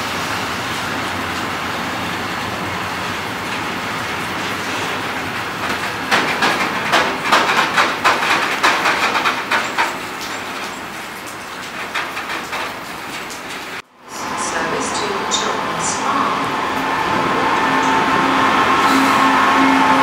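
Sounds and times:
freight train rolling past: 0.0 - 20.0
train wheel clicks on track: 3.4 - 13.8.

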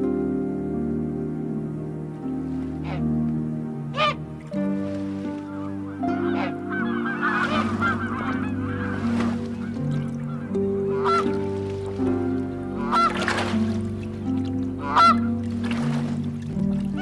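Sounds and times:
background music held notes: 0.0 - 17.0
geese honking: 2.7 - 3.2, 3.9 - 13.9, 14.6 - 15.5.

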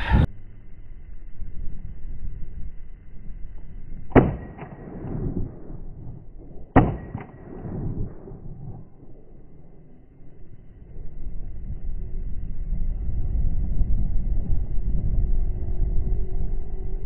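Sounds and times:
shotgun shots: 4.1 - 9.5.

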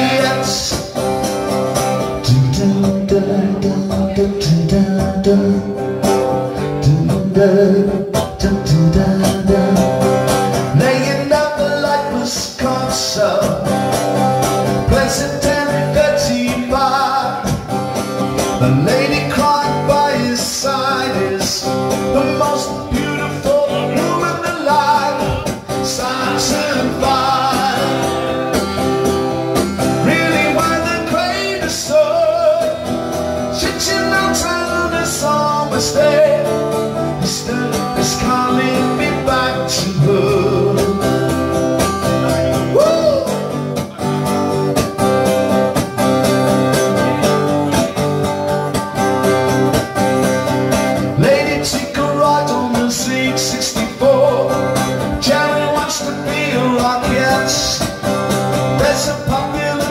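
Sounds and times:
acoustic guitar strumming: 0.0 - 59.9
man singing: 0.0 - 59.9.

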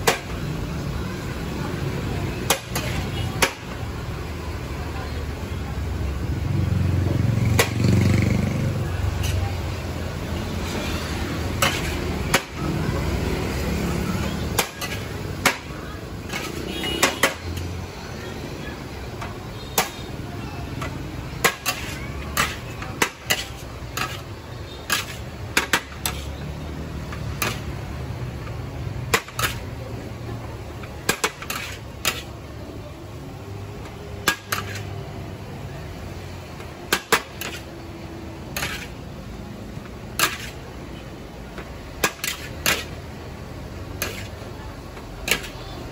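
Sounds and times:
low background noise: 0.0 - 45.9
metal spatula scraping a wok: 10.6 - 12.2, 14.6 - 15.1, 21.4 - 26.4, 29.1 - 29.8, 31.1 - 32.4, 34.2 - 35.0, 37.0 - 37.7, 38.4 - 39.0, 40.1 - 40.7, 42.0 - 43.0, 44.0 - 44.4.

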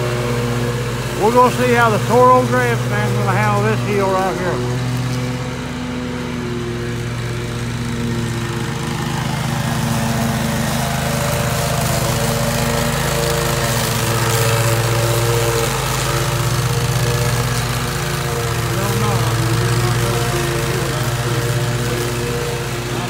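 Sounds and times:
mower engine running: 0.0 - 23.0.

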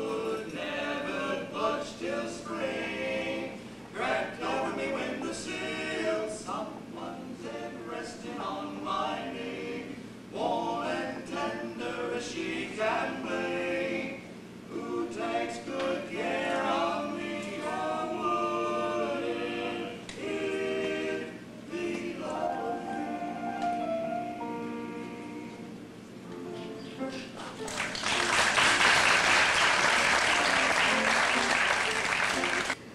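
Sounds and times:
male vocal quartet singing: 0.0 - 25.8.

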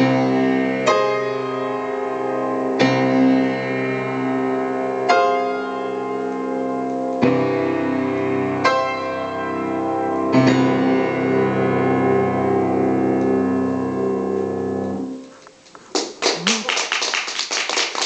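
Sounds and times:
hand clapping: 15.8 - 18.0.

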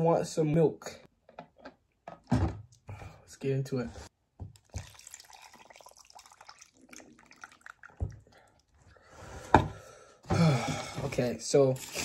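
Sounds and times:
liquid trickling and dripping: 4.5 - 8.9.

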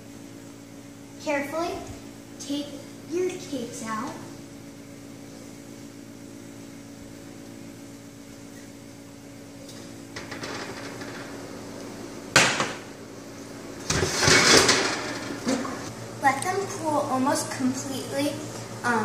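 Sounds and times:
steady low hum: 0.0 - 19.0
oven rack and door rattling: 10.1 - 12.9, 13.8 - 15.9.

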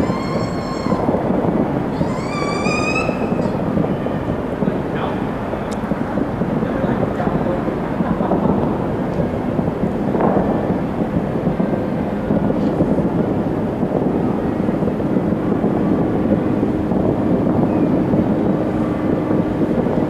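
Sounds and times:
sharp firework report: 0.0 - 14.9
distant fireworks booming: 0.0 - 20.0.

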